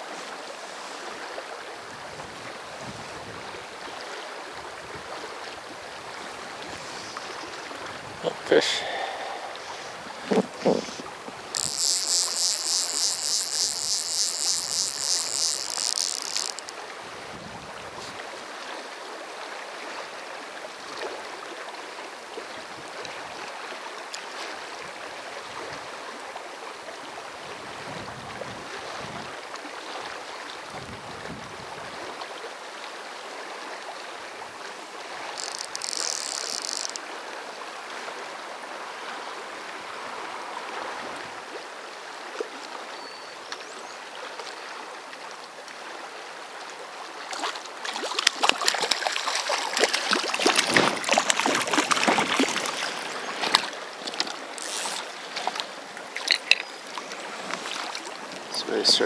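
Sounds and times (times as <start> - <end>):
river water flowing: 0.0 - 59.0
water splashing close by: 47.0 - 58.5.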